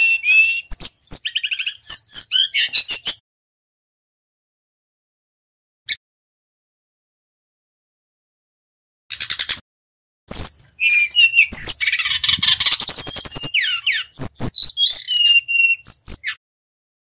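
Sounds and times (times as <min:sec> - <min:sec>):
bird singing whistles and trills: 0:00.0 - 0:03.2, 0:10.3 - 0:16.4.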